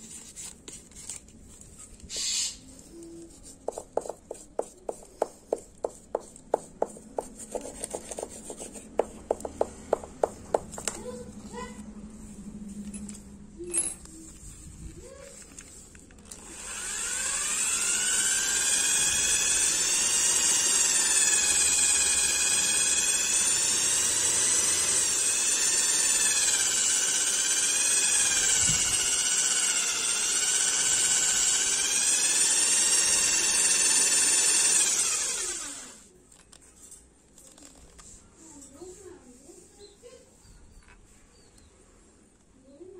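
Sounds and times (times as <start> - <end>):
power drill whining: 16.2 - 36.1.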